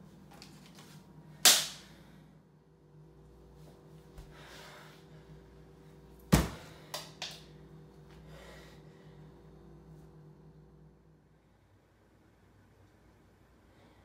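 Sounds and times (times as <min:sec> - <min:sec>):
person breathing: 0:04.2 - 0:06.0, 0:08.1 - 0:09.6, 0:13.6 - 0:14.0
fist banging on refrigerator: 0:06.3 - 0:06.8.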